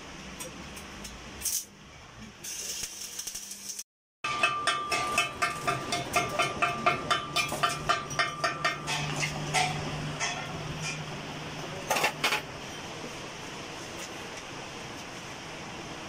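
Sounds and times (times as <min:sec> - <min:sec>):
hand tool tapping metal tube: 0:04.3 - 0:11.0.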